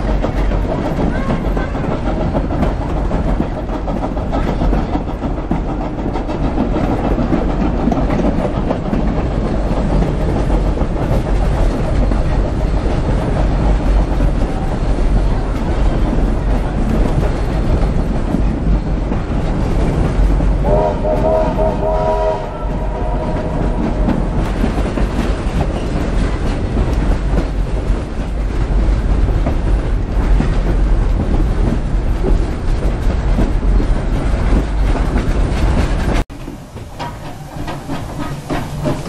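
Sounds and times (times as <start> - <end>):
train carriage rumble: 0.0 - 39.0
train wheels clattering on rails: 0.0 - 39.0
steam locomotive whistle: 20.6 - 24.3.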